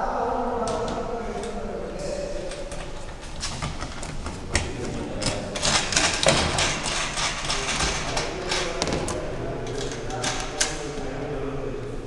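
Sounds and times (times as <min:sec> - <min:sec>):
clicks and knocks of tools: 0:02.5 - 0:10.8.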